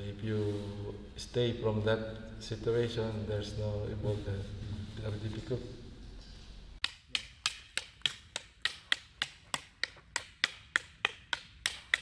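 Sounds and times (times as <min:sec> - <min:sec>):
wooden sticks clacking: 0:06.8 - 0:12.0.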